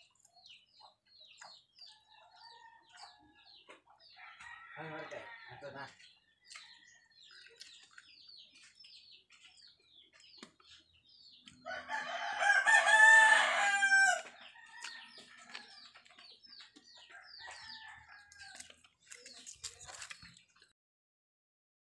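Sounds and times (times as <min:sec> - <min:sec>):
rooster crowing: 0:04.2 - 0:05.9, 0:11.6 - 0:15.6, 0:17.1 - 0:18.6.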